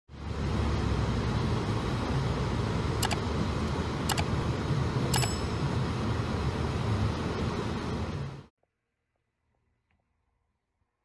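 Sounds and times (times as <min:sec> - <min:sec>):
car driving on snowy road: 0:00.1 - 0:05.2
sharp clicks: 0:03.0 - 0:03.3, 0:04.0 - 0:04.3, 0:05.1 - 0:05.5
short bell-like ring: 0:05.2 - 0:05.6.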